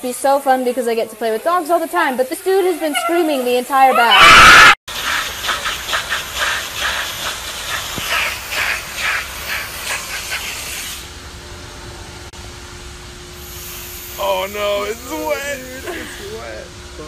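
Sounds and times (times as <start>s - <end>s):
pressure washer jet hissing: 4.9s - 11.2s, 13.4s - 16.6s
steady hum: 4.9s - 17.0s.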